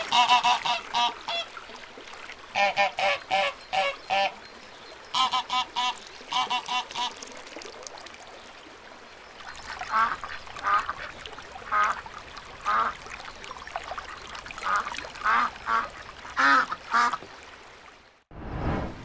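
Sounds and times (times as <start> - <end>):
ducks quacking: 0.0 - 1.5, 5.1 - 7.1
brief rush of noise: 18.3 - 19.0.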